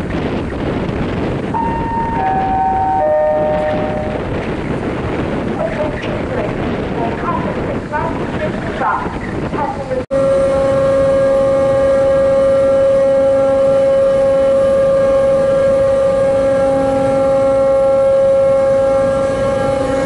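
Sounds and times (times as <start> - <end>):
low rumble: 0.0 - 20.0
steady loud tone: 1.6 - 4.4, 10.1 - 20.0.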